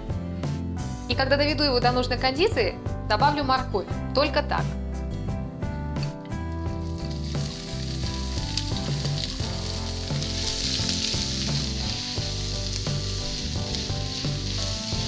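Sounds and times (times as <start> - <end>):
onion sizzling in oil: 6.6 - 15.0.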